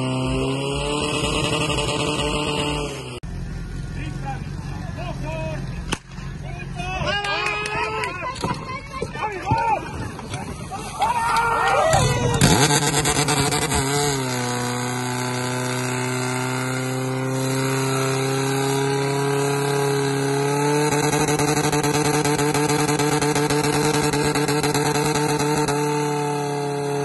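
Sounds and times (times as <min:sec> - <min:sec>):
fire pump engine running: 0:03.2 - 0:09.1.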